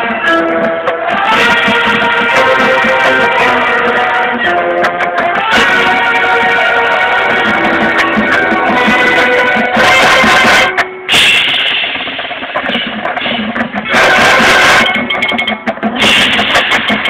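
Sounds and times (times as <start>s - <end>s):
marching band playing with drums: 0.0s - 17.0s.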